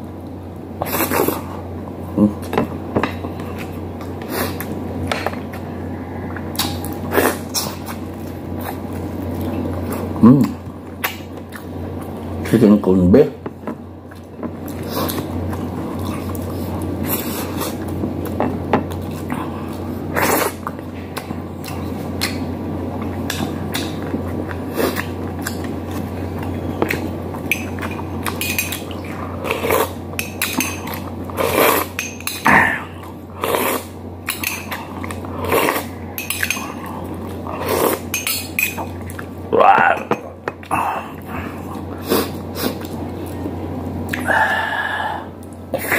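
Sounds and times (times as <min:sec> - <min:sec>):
steady low hum: 0:00.0 - 0:45.9
dishes and cutlery clinking: 0:27.4 - 0:29.0, 0:34.3 - 0:34.9, 0:36.2 - 0:36.8, 0:38.1 - 0:39.0, 0:39.7 - 0:40.6.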